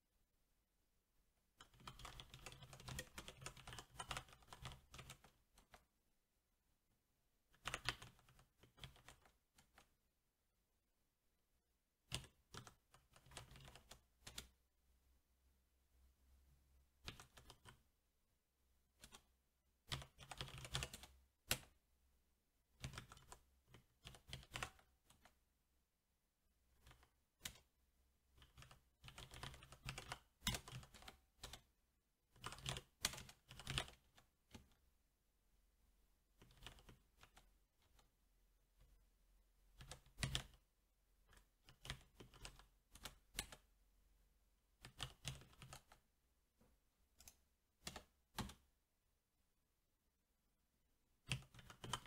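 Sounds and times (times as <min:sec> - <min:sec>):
mechanical keyboard typing: 0:01.6 - 0:05.8, 0:07.6 - 0:09.9, 0:12.1 - 0:14.5, 0:17.0 - 0:17.8, 0:19.9 - 0:21.7, 0:22.8 - 0:25.4, 0:28.4 - 0:31.7, 0:32.4 - 0:34.7, 0:36.4 - 0:38.0, 0:39.8 - 0:40.6, 0:41.3 - 0:43.6, 0:44.8 - 0:46.0, 0:47.2 - 0:48.6, 0:51.3 - 0:52.0.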